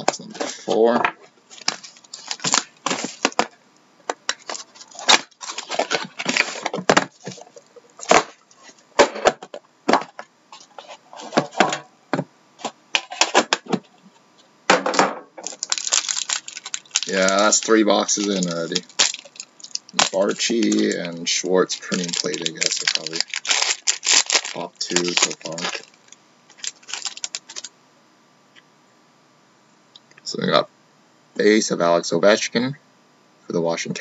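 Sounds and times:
plastic wrap crinkling and tearing: 1.5s - 3.5s, 4.3s - 8.8s, 15.4s - 27.7s
box and tin clicks and scrapes: 4.3s - 8.2s.

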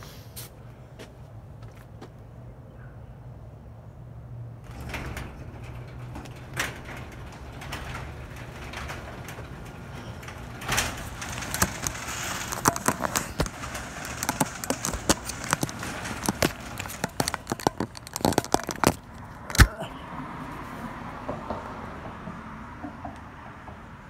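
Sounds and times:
garage door rattling open: 4.6s - 19.8s.

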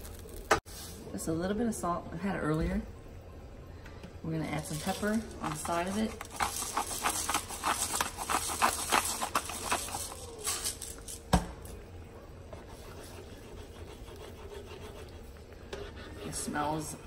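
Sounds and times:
pepper grinder crunching: 4.7s - 11.8s.

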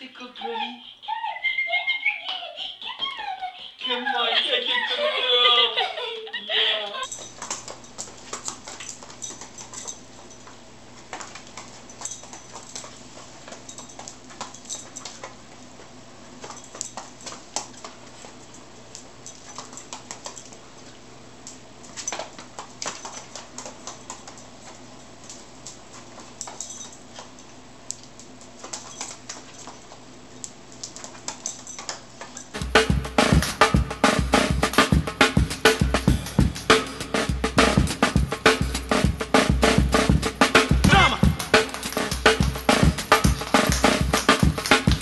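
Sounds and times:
booted paws tapping: 32.6s - 45.0s
steady low hum: 32.6s - 45.0s.

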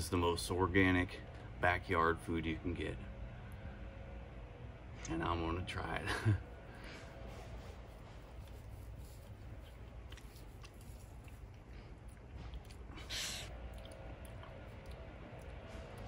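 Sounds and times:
man chewing: 8.1s - 16.0s
wet mouth clicks: 9.6s - 15.6s.

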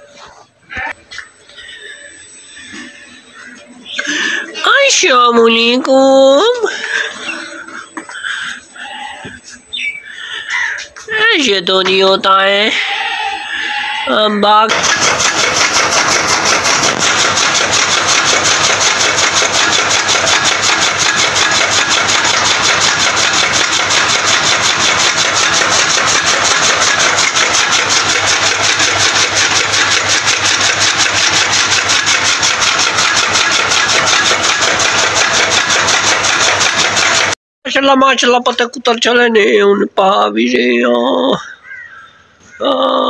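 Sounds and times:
blades chopping fodder: 14.7s - 37.4s
machine motor running: 14.7s - 37.4s.

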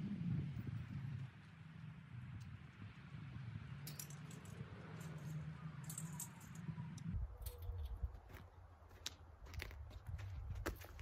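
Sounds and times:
metal gear clinking: 3.8s - 6.7s.

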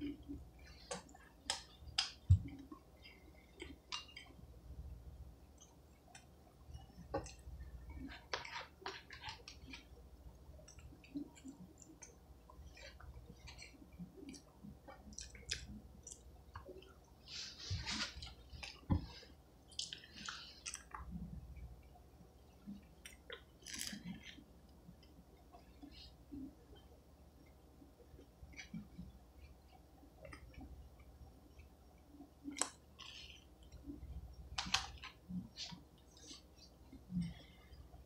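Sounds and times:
chewing and wet mouth smacking: 10.7s - 16.9s, 18.0s - 21.3s.

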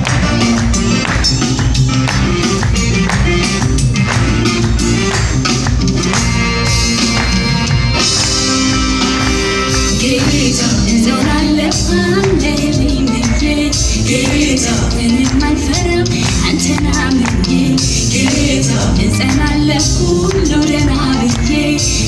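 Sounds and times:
band playing worship song: 0.0s - 22.0s
busy percussion: 0.0s - 22.0s
woman singing: 9.9s - 22.0s.

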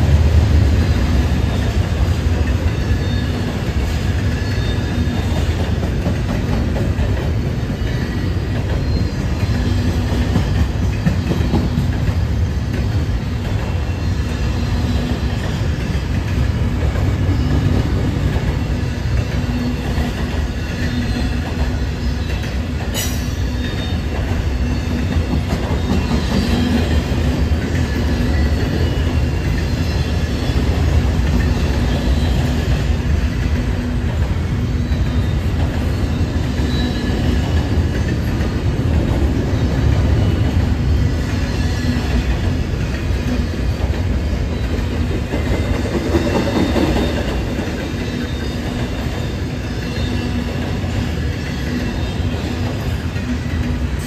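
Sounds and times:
train wheels rumbling on rail: 0.0s - 54.0s.

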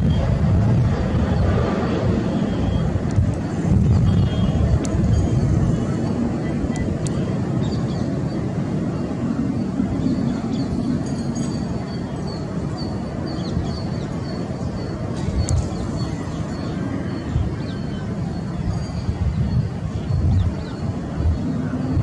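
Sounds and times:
distant jet engines rumbling: 0.0s - 22.0s
bird chirping: 9.9s - 21.6s.

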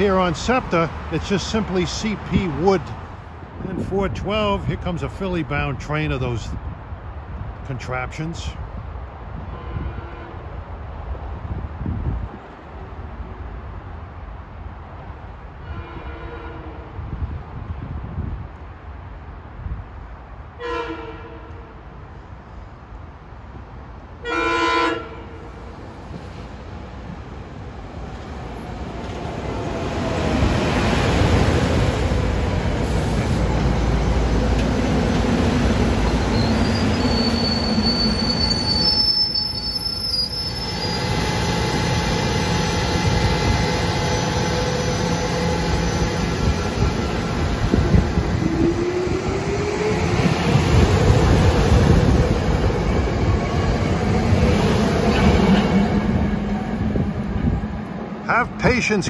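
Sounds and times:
train rumbling: 0.0s - 7.8s, 25.0s - 59.0s
high wheel squeal: 36.0s - 42.0s.

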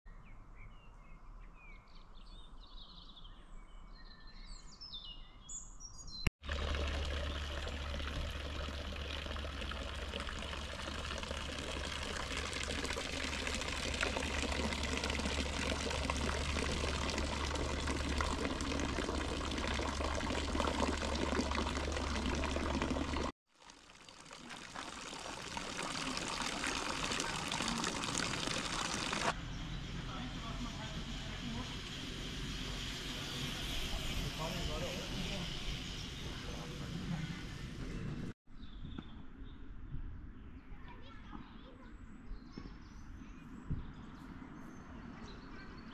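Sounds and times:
small birds chirping: 0.1s - 6.3s
water pouring into trough: 6.4s - 29.4s.

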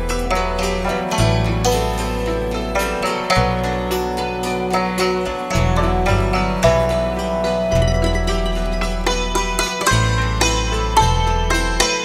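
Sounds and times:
low bass line: 0.0s - 12.0s.

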